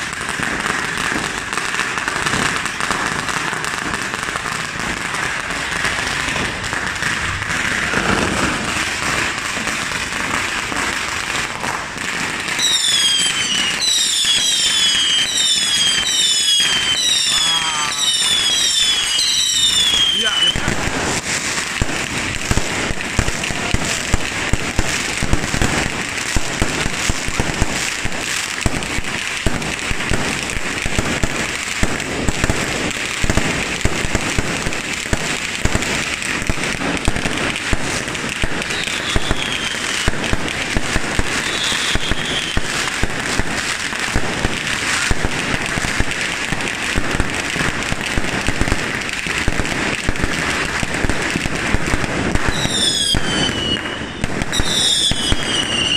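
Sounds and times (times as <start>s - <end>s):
fireworks bursting: 0.0s - 55.9s
falling firework whistles: 12.4s - 27.6s, 38.4s - 43.5s, 50.8s - 55.9s.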